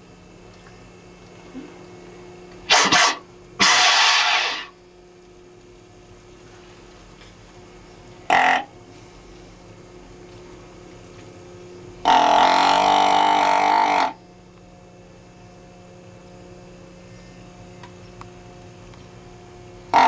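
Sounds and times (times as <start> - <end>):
faint steady hum: 0.0 - 20.0
deer call blown: 2.7 - 4.7, 12.0 - 14.2.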